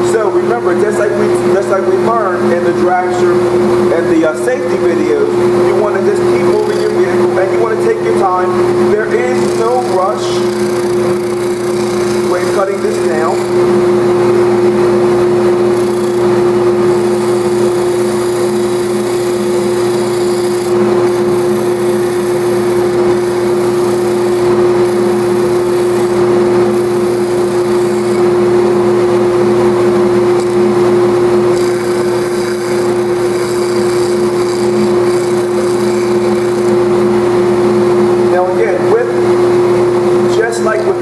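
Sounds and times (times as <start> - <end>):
dust exhaust system running: 0.0 - 41.0
sander motor hum: 0.0 - 41.0
wood sanding hiss: 31.5 - 36.7.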